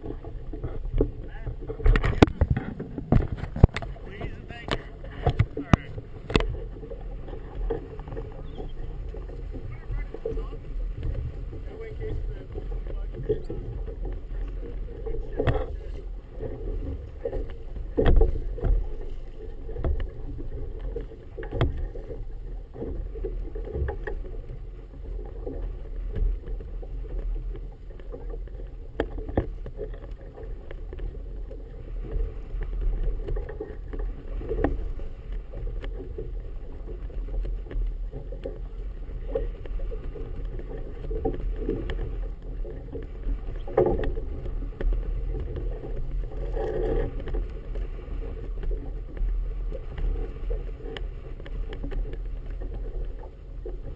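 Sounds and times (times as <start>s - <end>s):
water slapping against boat hull: 0.0s - 53.9s
wind buffeting microphone: 0.0s - 53.9s.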